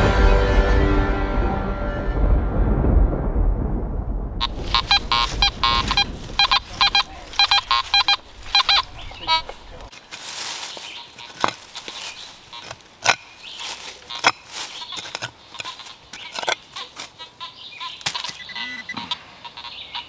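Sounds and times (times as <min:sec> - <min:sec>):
digging in stony soil: 0:04.5 - 0:18.5.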